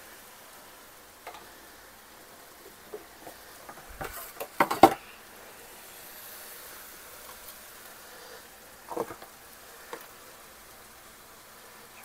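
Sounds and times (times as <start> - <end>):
food simmering in a pan: 0.0 - 12.0
sharp clatters and knocks: 2.9 - 5.1.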